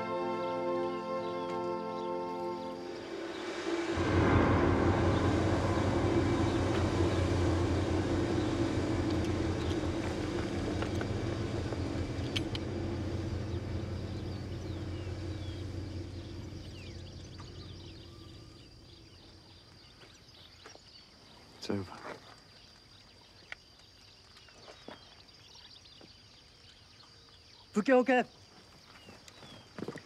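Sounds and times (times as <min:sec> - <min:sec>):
vehicle engine low drone: 0:00.0 - 0:19.9.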